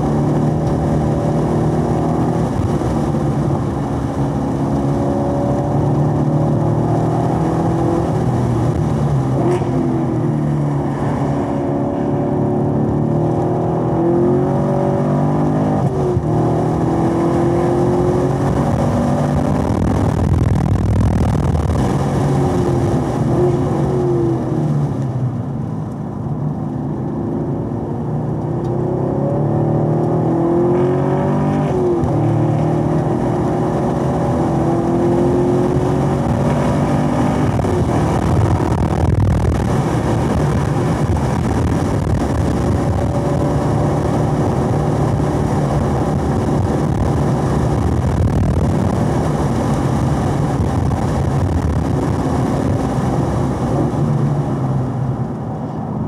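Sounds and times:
car engine accelerating: 0.0 - 56.0.

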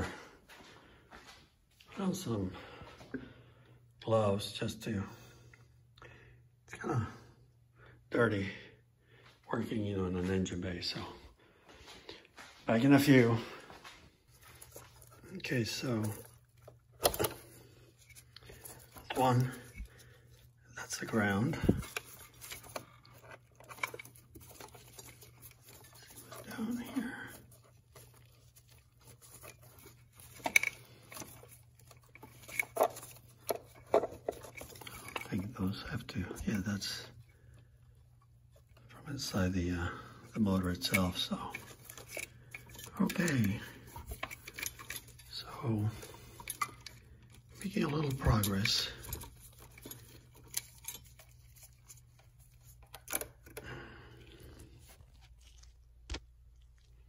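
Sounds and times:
gloved hands rustling: 11.4 - 57.0.

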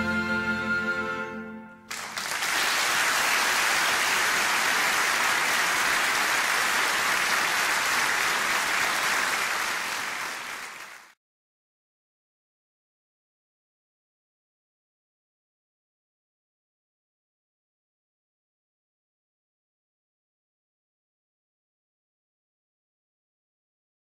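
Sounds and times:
audience applauding: 1.9 - 11.2.

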